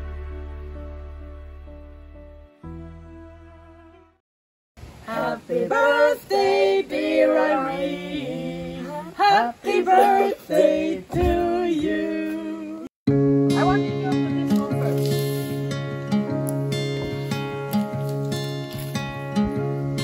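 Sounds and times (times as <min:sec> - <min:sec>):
soft instrumental music: 0:00.0 - 0:04.2, 0:13.1 - 0:20.0
group singing: 0:05.0 - 0:12.9.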